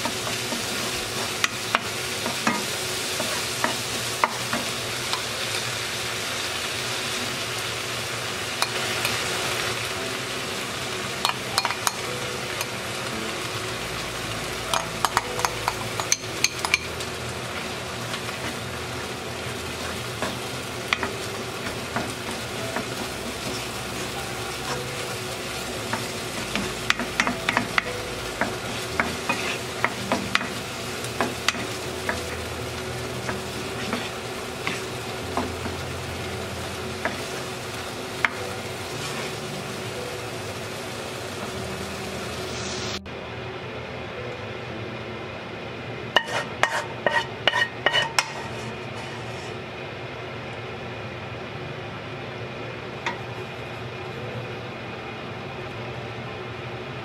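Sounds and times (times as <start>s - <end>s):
food sizzling in a frying pan: 0.0s - 43.1s, 46.0s - 49.8s
wooden spatula scraping a pan: 29.0s - 29.9s, 33.3s - 35.5s, 46.2s - 49.6s.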